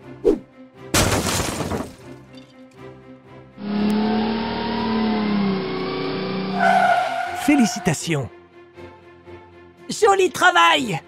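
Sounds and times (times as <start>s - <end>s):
background music: 0.0s - 11.0s
car engine sound effect: 3.6s - 8.1s.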